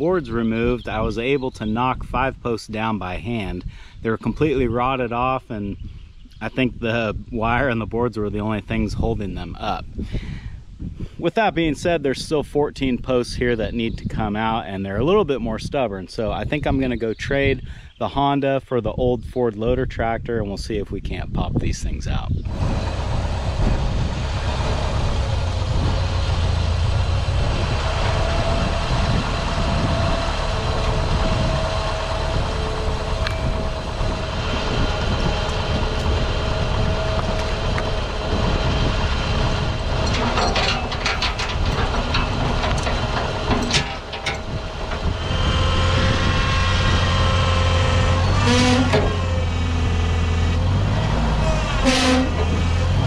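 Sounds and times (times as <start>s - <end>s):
tractor engine idling: 22.5s - 53.0s
metal chain clinking: 40.0s - 45.0s.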